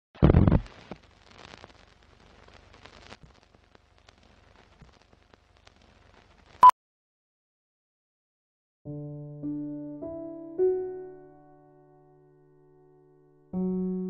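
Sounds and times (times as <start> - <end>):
faint crackling and ticks: 0.3 - 6.6.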